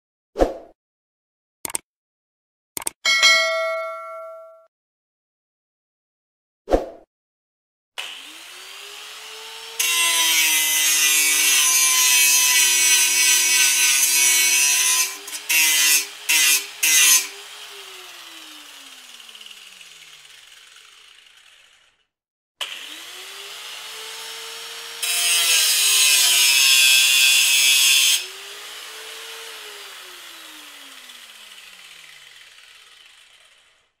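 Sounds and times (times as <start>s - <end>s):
angle grinder grinding metal: 8.0s - 22.0s, 22.6s - 34.0s.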